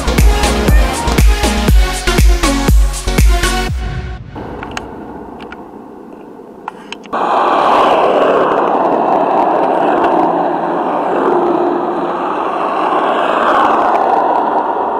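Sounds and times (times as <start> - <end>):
plastic wheels rolling on asphalt: 12.0 - 14.9.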